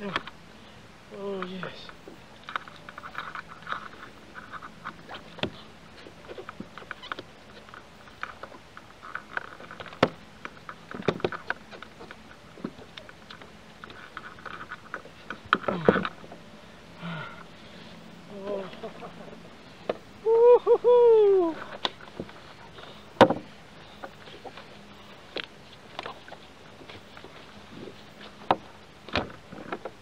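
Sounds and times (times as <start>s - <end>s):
clicks and knocks in kayak: 2.4s - 16.3s, 21.6s - 30.0s.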